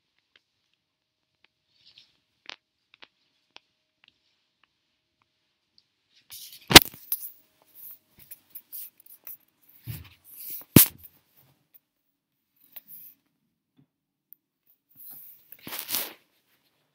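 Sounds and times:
jacket sleeve rustling on phone: 15.0 - 16.9.

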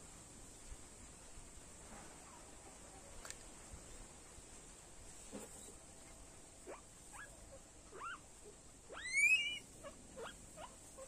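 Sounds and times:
guinea pig squeaking: 6.6 - 7.3, 7.9 - 8.2, 8.9 - 11.0.

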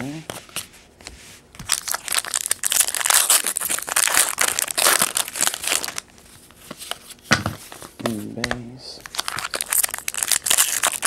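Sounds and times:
foil wrapper tearing and crinkling: 1.7 - 6.0, 9.0 - 11.0.

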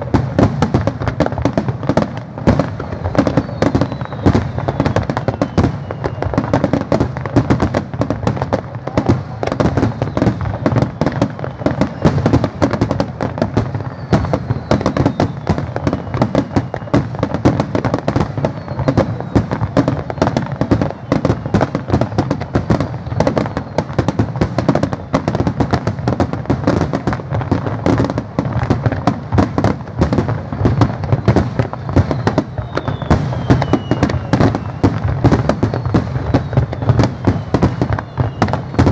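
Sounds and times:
faint falling whistles: 2.9 - 6.6, 9.8 - 12.4, 13.8 - 17.1, 18.3 - 25.3, 30.6 - 38.9.

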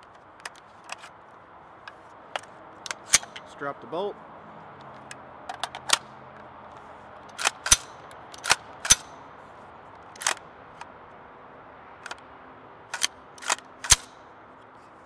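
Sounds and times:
rifle bolt metallic clacks: 1.9 - 3.5, 4.8 - 6.5, 7.2 - 9.2, 10.2 - 10.9, 12.9 - 14.2.

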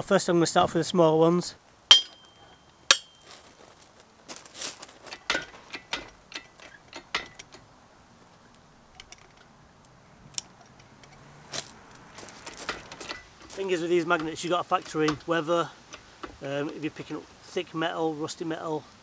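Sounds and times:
metal clinks and rattles: 1.9 - 3.5, 4.9 - 7.7, 10.5 - 13.6.

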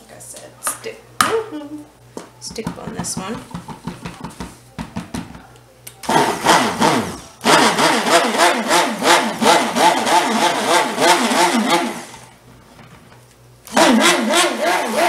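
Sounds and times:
stick blender motor running: 6.0 - 12.3, 13.7 - 15.0.

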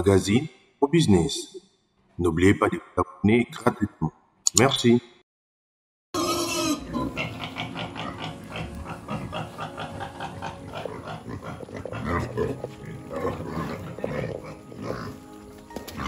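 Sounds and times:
pig grunting: 6.2 - 15.2.

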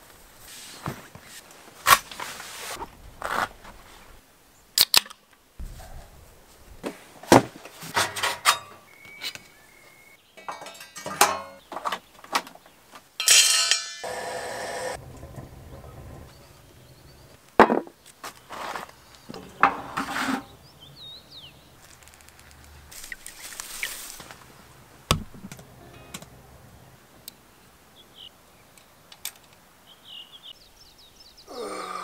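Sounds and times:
camping gear handling knocks: 25.1 - 25.7.

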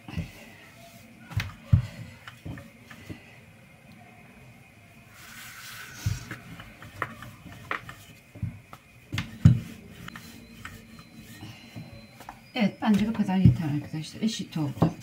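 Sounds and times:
rolling pin rolling dough: 0.0 - 3.4, 5.1 - 15.0
hands rubbing and flipping dough: 5.1 - 15.0
light knocks and soft thumps: 6.0 - 10.8, 11.7 - 14.0.

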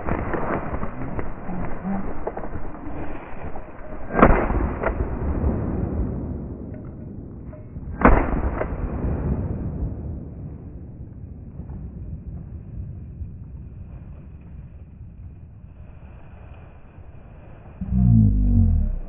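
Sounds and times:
pheasant wingbeats: 0.0 - 4.3.

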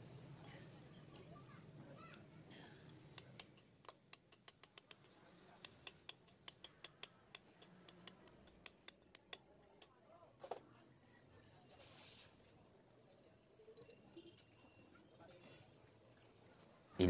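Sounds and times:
metal tools clicking on engine parts: 2.8 - 9.9.

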